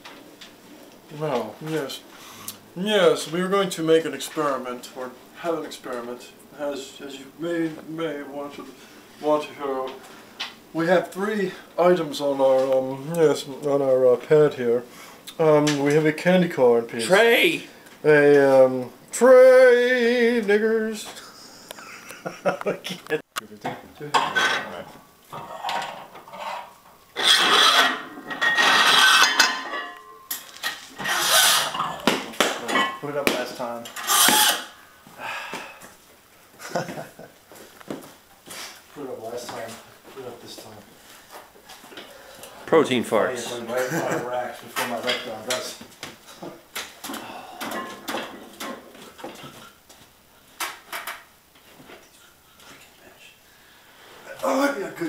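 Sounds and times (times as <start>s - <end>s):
metal plates scraping on barbell: 25.4s - 30.2s, 34.0s - 34.7s.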